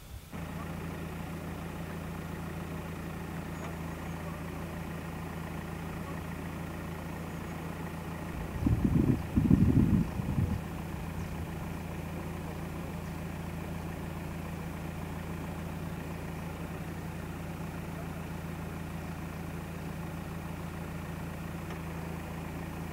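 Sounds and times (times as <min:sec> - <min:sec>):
engine idling: 0:00.0 - 0:22.9.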